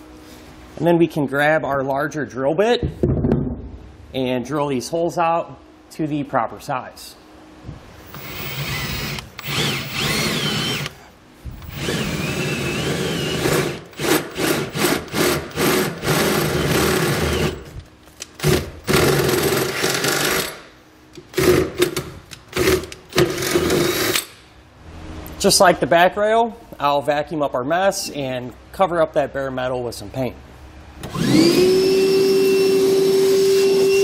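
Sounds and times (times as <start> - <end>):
cordless drill boring through metal: 8.1 - 10.9, 11.6 - 17.7, 31.0 - 34.0.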